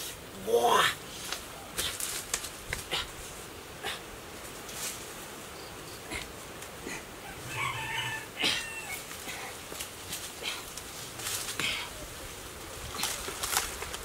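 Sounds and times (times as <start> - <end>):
hands and feet scraping palm trunk: 0.0 - 5.4, 8.4 - 14.0
rooster crowing: 7.2 - 9.2.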